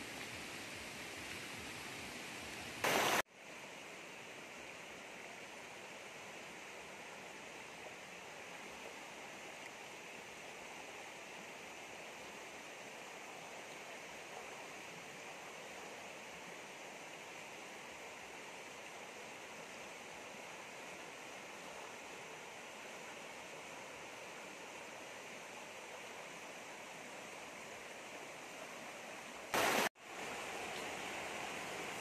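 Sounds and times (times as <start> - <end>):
river rushing over rapids: 0.0 - 32.0
loud burst of noise: 2.8 - 3.2.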